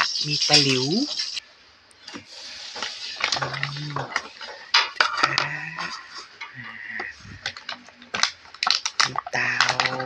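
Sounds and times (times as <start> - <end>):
plastic toys clicking and knocking: 0.0 - 1.4, 2.0 - 10.0
plastic packaging crinkling: 2.0 - 10.0.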